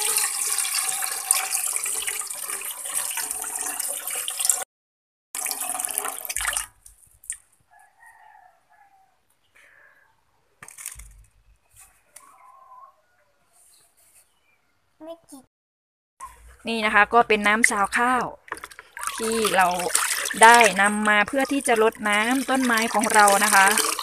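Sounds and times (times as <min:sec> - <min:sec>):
water pouring into metal pot: 0:00.0 - 0:04.6, 0:05.4 - 0:07.4, 0:17.4 - 0:24.0.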